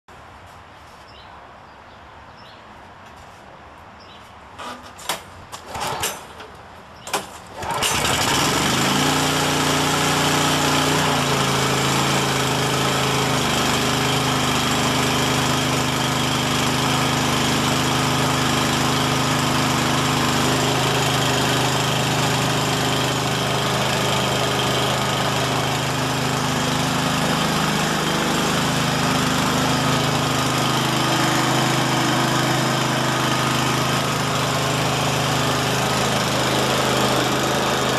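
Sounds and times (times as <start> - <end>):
recoil starter pulls: 4.6 - 14.6
lawn mower engine running: 4.6 - 37.9.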